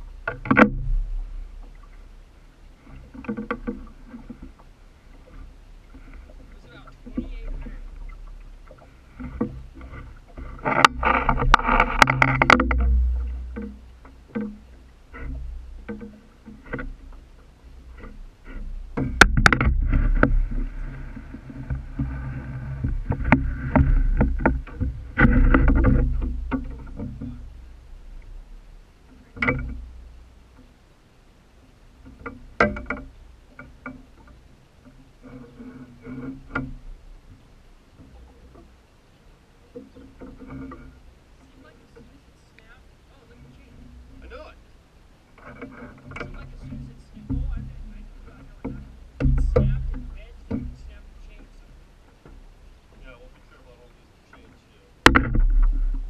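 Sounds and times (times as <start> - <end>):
water sloshing against a boat: 0.0 - 56.0
low rumble: 4.7 - 15.9
ringing knocks on boat hull: 32.3 - 33.1, 48.6 - 50.9, 55.1 - 55.9.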